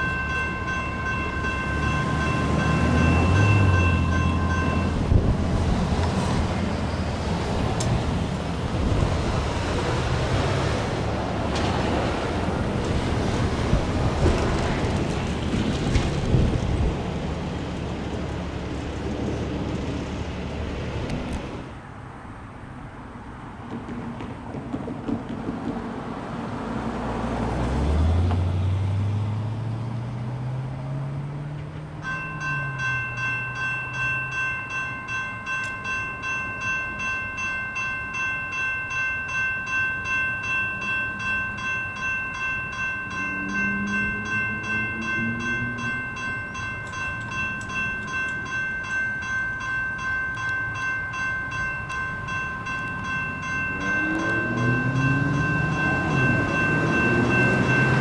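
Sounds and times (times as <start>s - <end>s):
crossing bells ringing: 0.0s - 7.7s, 31.9s - 58.0s
car engine accelerating: 43.2s - 46.0s, 53.7s - 58.0s.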